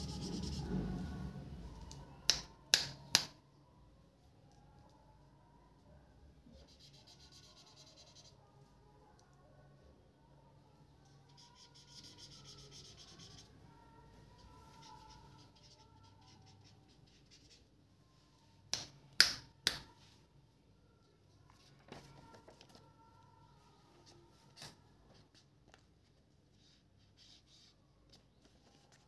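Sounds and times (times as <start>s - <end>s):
marker scratching on paper: 0.0s - 1.1s, 6.6s - 8.4s, 11.3s - 13.6s, 14.4s - 17.7s, 26.5s - 29.0s.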